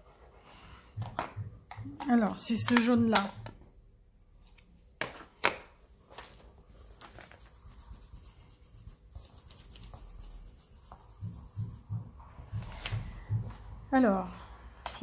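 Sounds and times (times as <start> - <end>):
foam tool rubbing and dabbing: 7.2 - 13.5.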